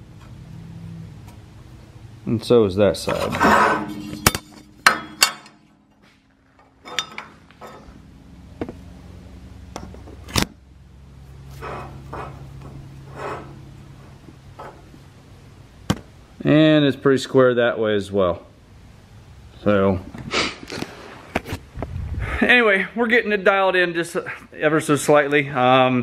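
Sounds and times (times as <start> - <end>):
metal clinks and knocks: 3.1 - 8.0.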